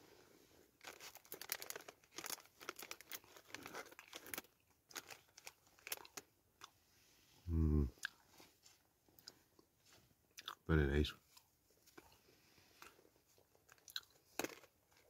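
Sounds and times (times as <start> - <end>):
plastic wrapper crinkling: 0.8 - 6.3.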